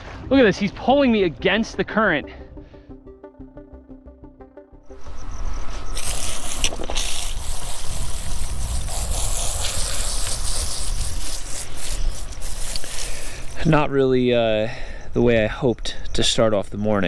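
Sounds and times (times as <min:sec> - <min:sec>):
music: 0:00.0 - 0:05.8
wind noise: 0:04.9 - 0:13.9.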